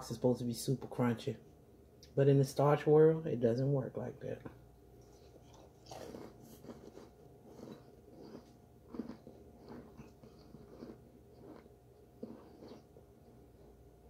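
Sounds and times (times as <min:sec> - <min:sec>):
soft crunching chews: 0:04.4 - 0:14.0.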